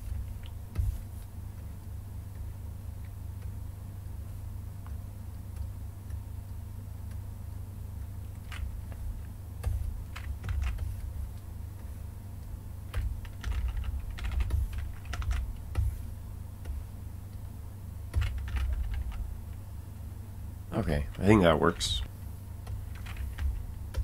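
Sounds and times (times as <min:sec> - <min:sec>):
low steady hum: 0:00.0 - 0:24.0
keyboard keys clicking: 0:08.3 - 0:11.5, 0:12.9 - 0:16.0, 0:18.1 - 0:19.3, 0:22.6 - 0:24.0.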